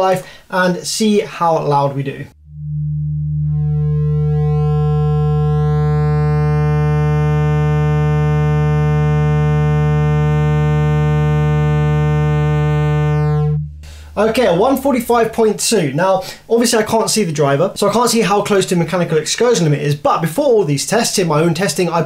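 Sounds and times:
subwoofer low test tone: 0:02.3 - 0:15.2.

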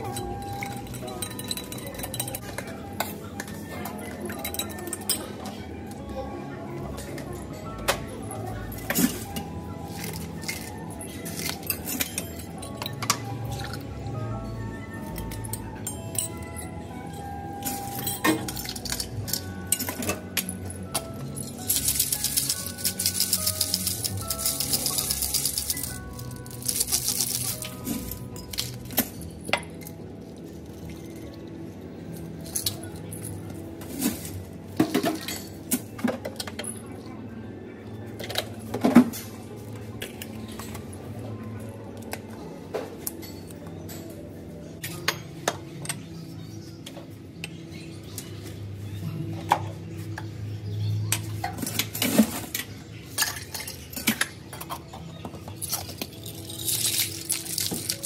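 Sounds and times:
glassware and shaker clinking: 0:00.0 - 0:05.4, 0:07.5 - 0:13.8, 0:15.1 - 0:31.4, 0:32.4 - 0:36.8, 0:51.4 - 0:58.0
soft background music: 0:00.0 - 0:58.0
ice clinking in plastic cup: 0:21.4 - 0:29.3, 0:55.6 - 0:58.0.

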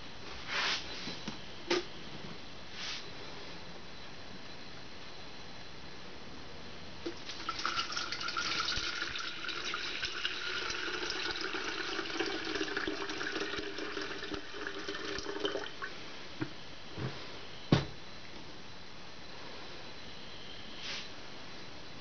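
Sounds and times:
water pouring into a kettle: 0:07.1 - 0:15.9.

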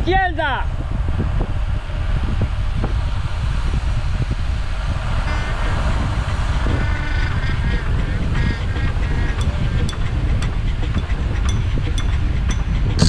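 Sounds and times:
wind rushing over microphone: 0:00.0 - 0:13.0
faint high-pitched calls: 0:05.3 - 0:12.1.

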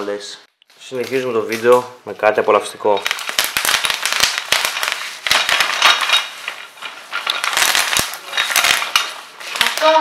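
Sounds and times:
bubble wrap popping: 0:03.0 - 0:10.0.

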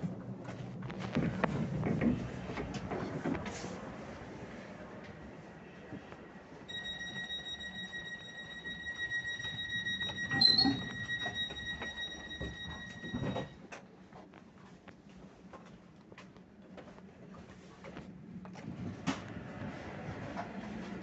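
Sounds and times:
high electronic warning tone: 0:06.7 - 0:13.6.

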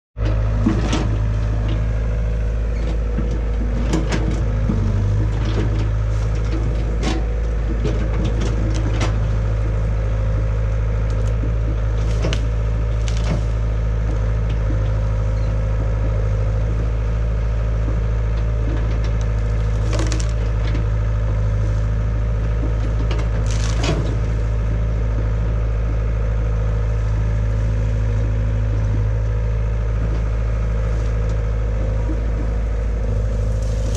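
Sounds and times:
diesel engine running: 0:00.2 - 0:33.9
bamboo stems cracking: 0:05.3 - 0:15.0, 0:18.8 - 0:21.0, 0:22.7 - 0:24.6, 0:33.2 - 0:33.9.

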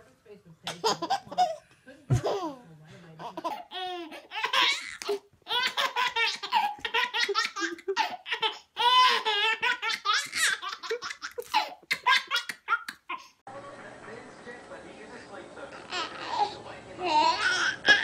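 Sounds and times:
baby giggling: 0:00.7 - 0:02.6, 0:03.2 - 0:13.4
woman laughing: 0:07.2 - 0:08.2, 0:10.8 - 0:12.3.

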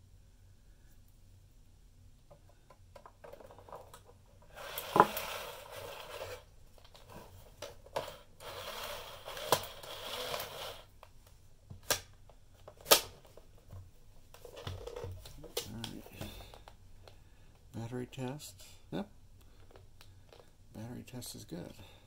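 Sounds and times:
plastic scraping and rustling: 0:03.0 - 0:10.9.

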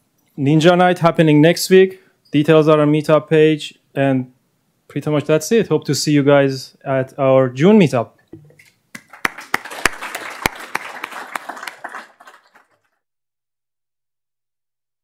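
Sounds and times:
loud single claps: 0:09.0 - 0:12.4
audience applause: 0:09.0 - 0:13.0.

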